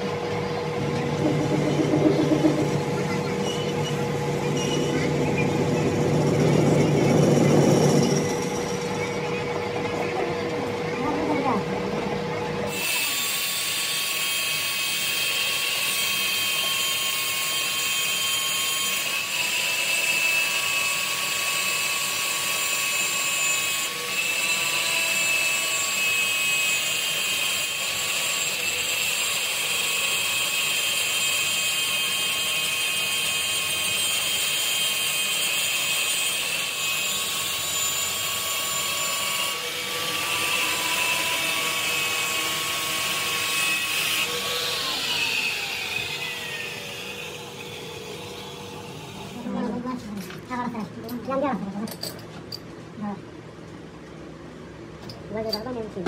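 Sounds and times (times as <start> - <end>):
angle grinder whining: 0.0 - 49.8
lathe running: 33.8 - 49.5.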